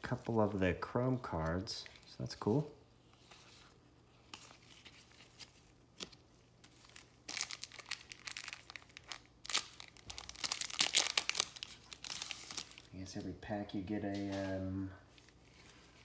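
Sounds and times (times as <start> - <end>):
wrapper crinkling and tearing: 6.7 - 13.0.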